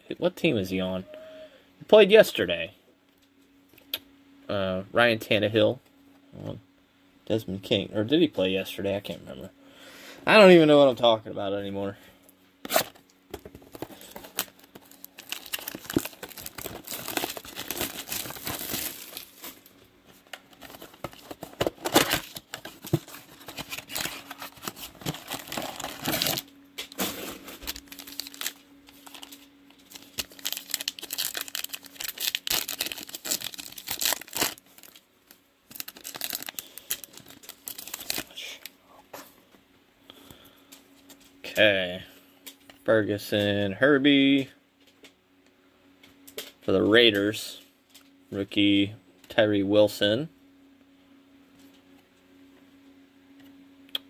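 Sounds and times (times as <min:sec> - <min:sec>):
foil wrapper tearing and crinkling: 0:13.6 - 0:19.7, 0:20.3 - 0:38.7.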